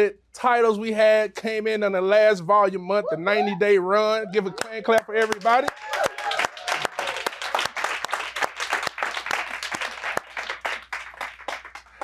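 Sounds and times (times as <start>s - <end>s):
audience applauding: 4.6s - 12.0s.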